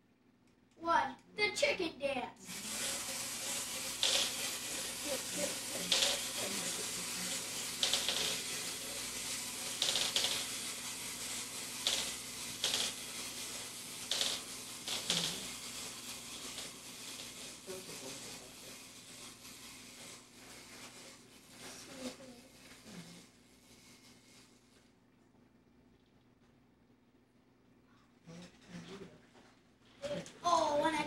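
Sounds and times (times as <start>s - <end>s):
clockwork toy motors whirring: 2.4s - 24.3s
sharp clicking bursts: 2.5s - 18.3s.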